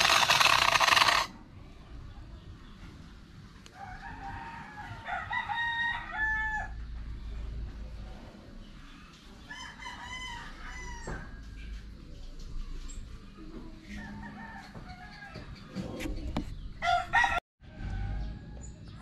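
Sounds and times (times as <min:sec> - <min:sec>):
rooster crowing: 0:03.7 - 0:06.8, 0:16.8 - 0:18.6.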